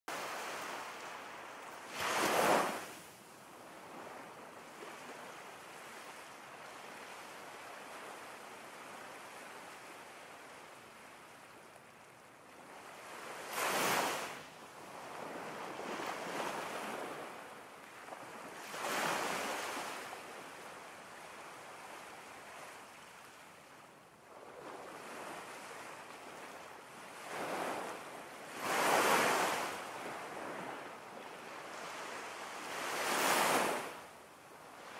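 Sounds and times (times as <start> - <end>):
ocean waves breaking: 13.0 - 14.4.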